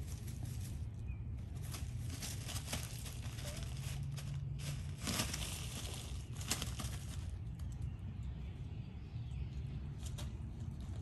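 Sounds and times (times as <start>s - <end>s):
paws scratching pine needles: 0.0s - 8.2s.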